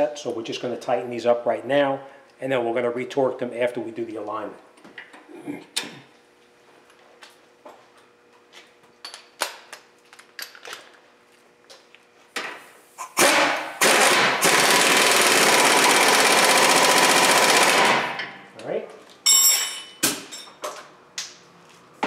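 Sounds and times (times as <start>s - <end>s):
pneumatic impact wrench hammering: 13.0s - 18.4s.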